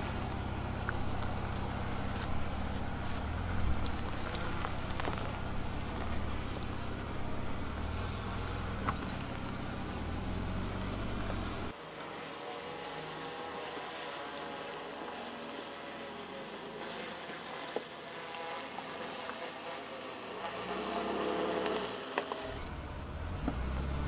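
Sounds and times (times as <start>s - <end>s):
stones crunching under tyres: 0.0s - 11.7s
truck engine at low revs: 0.0s - 11.8s, 20.5s - 24.0s
outdoor background: 0.0s - 24.0s.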